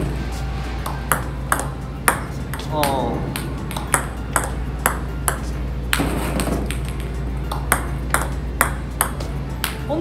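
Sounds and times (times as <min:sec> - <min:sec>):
low steady hum: 0:00.0 - 0:10.0
table tennis ball clicking: 0:01.1 - 0:09.8.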